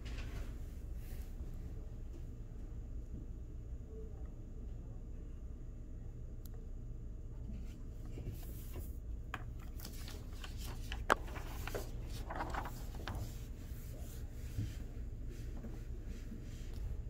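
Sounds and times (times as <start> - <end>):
paper rustling: 8.1 - 14.8.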